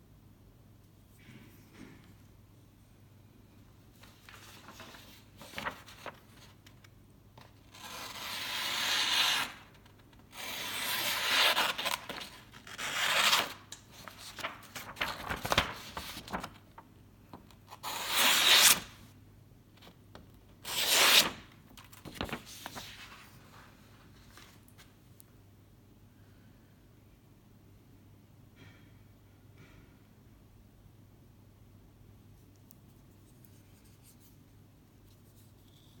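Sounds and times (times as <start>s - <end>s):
knife slicing through paper: 7.7s - 9.7s, 10.3s - 16.4s.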